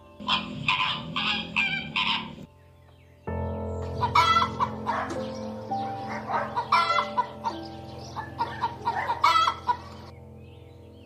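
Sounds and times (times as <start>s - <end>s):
music with long held notes: 0.0s - 11.0s
hen clucking: 0.2s - 2.5s, 4.0s - 5.4s, 6.0s - 10.1s.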